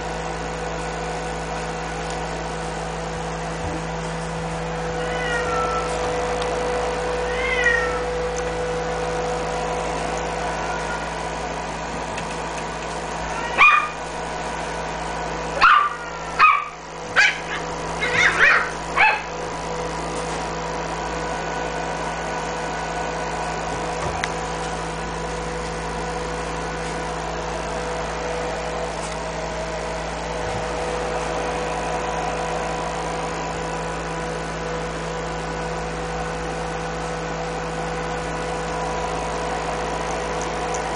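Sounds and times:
steady hum: 0.0s - 40.9s
puppy yipping and barking: 13.4s - 14.0s, 15.6s - 19.3s.

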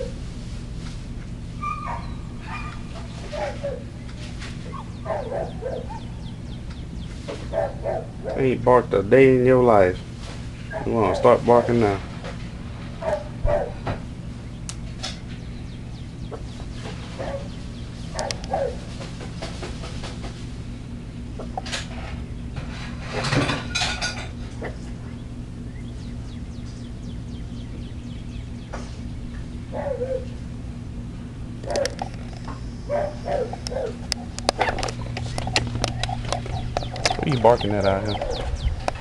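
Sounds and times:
small dog barking: 1.6s - 3.9s, 4.7s - 6.2s, 7.5s - 8.4s, 10.7s - 11.4s, 13.0s - 13.8s, 17.2s - 18.9s, 29.7s - 30.4s, 31.6s - 32.0s, 32.9s - 34.7s, 38.1s - 38.5s.

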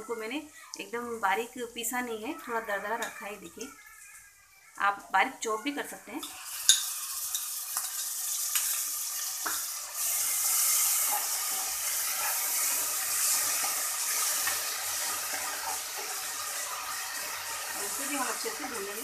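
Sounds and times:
onions sizzling in hot oil: 0.0s - 19.0s
metal spoon scraping a pot: 6.2s - 18.0s.

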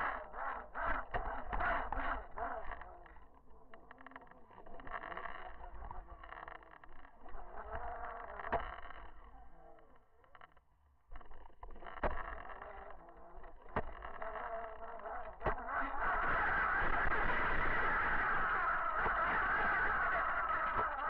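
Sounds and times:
wavering hum: 11.1s - 21.0s.

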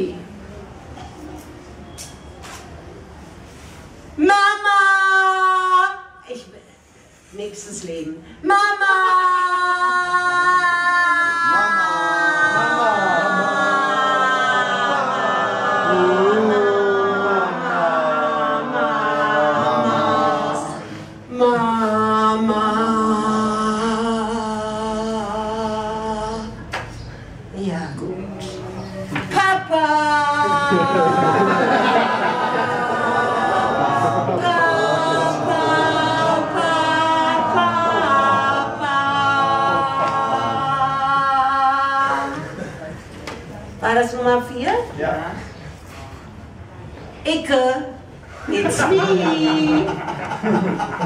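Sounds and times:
woman singing wordless notes: 4.2s - 6.3s, 8.4s - 15.0s, 15.8s - 26.7s, 34.3s - 42.4s.

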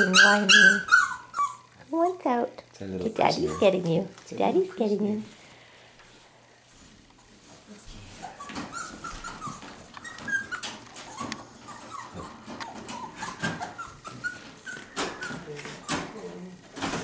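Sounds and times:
puppy whining and whimpering: 0.0s - 1.7s, 8.2s - 16.6s.

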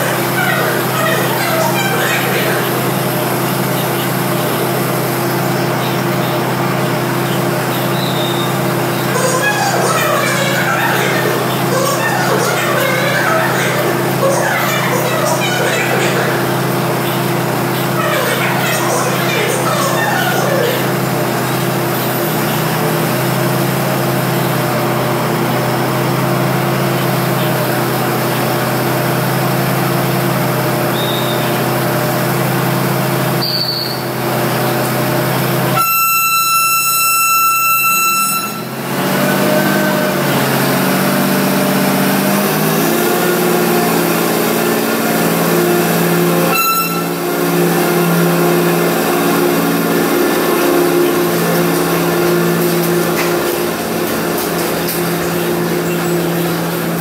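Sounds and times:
loud high-pitched tone: 0.0s - 6.1s, 7.6s - 22.5s, 35.6s - 57.0s
diesel train engine humming: 0.0s - 57.0s.

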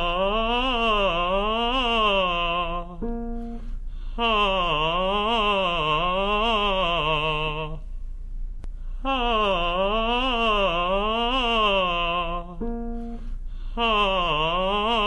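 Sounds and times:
singer vocalizing on a vowel: 0.0s - 7.8s, 9.0s - 15.0s
steady instrument note: 3.0s - 3.7s, 12.6s - 13.3s.

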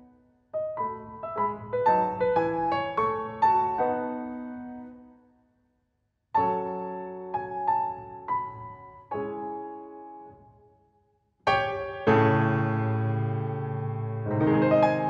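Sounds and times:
piano music: 0.0s - 5.1s, 11.5s - 15.0s.

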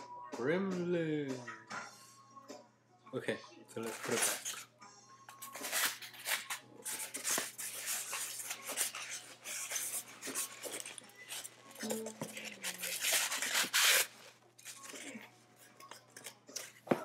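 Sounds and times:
paper and plastic crinkling: 3.8s - 4.7s, 5.3s - 17.0s.

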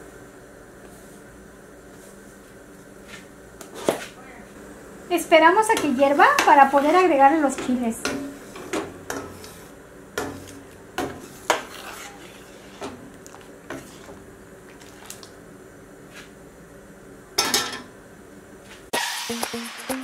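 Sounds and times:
metal ladle scraping a pot: 11.2s - 13.0s.

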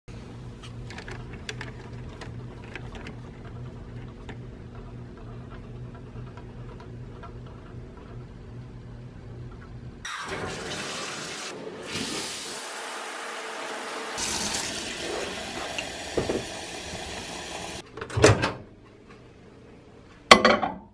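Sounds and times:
shower spraying water: 10.1s - 17.8s.

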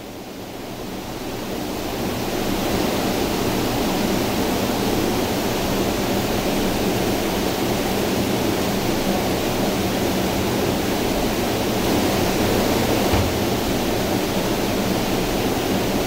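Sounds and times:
rushing roar of running water: 0.7s - 16.0s.

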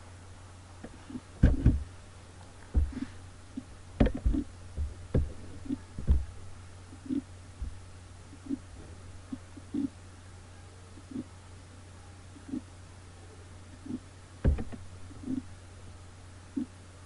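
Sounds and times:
low electrical hum: 0.0s - 17.0s
low thumps and knocks: 0.8s - 2.0s, 2.6s - 6.6s, 7.6s - 7.9s, 14.4s - 15.4s.

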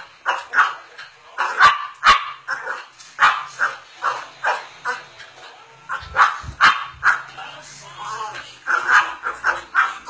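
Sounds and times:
dog barking: 0.2s - 0.8s, 1.4s - 5.0s, 5.9s - 7.3s, 8.7s - 10.0s.

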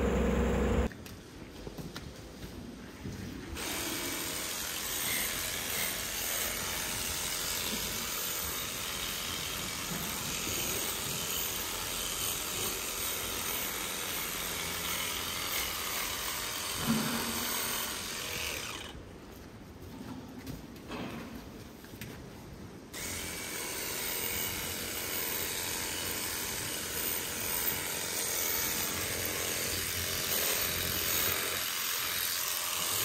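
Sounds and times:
electric clipper running: 0.0s - 0.9s, 17.5s - 18.9s.

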